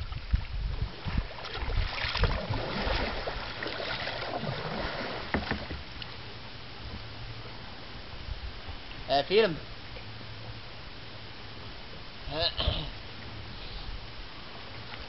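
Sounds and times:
wind rumbling on microphone: 0.0 - 6.0, 6.7 - 15.0
paddle splashes and drips: 0.0 - 7.6.

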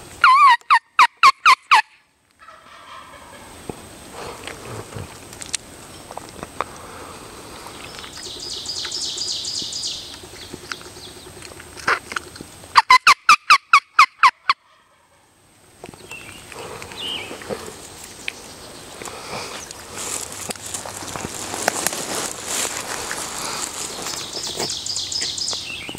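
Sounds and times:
turkey gobbling: 0.2 - 3.6, 12.7 - 15.4.

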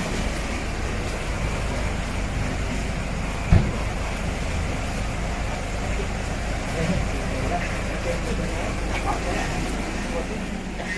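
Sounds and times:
low rumbling background noise: 0.0 - 10.9
dull thump: 3.4 - 3.9.

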